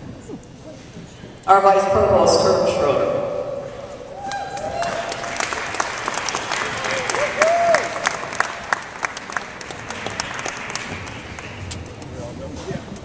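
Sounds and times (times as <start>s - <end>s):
audience applauding: 4.2s - 12.2s.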